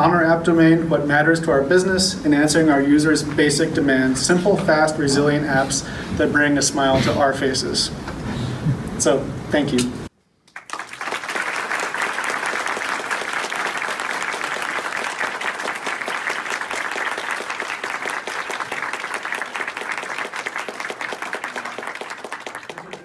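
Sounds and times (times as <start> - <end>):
audience applauding: 10.5 - 23.0.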